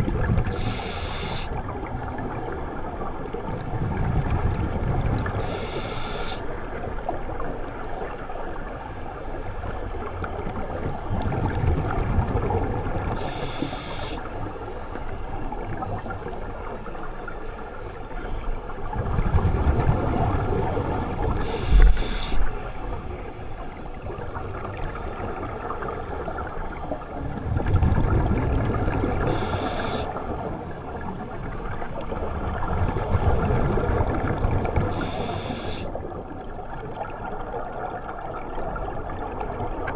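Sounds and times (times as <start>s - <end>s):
regulator inhalation hiss: 0.5s - 1.5s, 5.4s - 6.4s, 13.2s - 14.2s, 21.4s - 22.9s, 29.3s - 30.2s, 34.9s - 35.9s
gurgle of exhaled bubbles: 27.2s - 35.4s.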